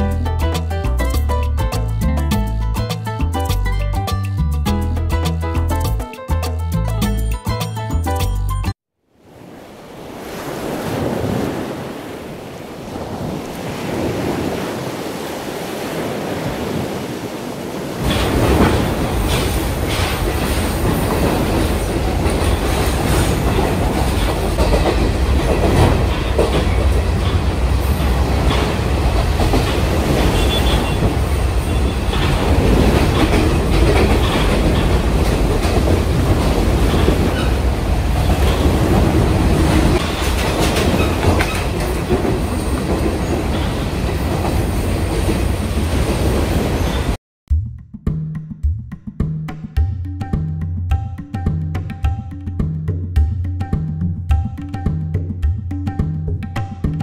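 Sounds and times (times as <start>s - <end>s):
train rumble: 17.6s - 47.2s
train wheels clacking over rail joints: 18.0s - 46.9s.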